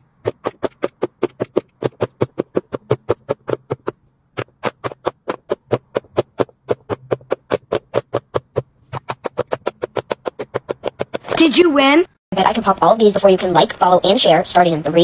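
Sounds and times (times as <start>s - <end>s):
silicone bubbles popping: 0.0s - 11.4s.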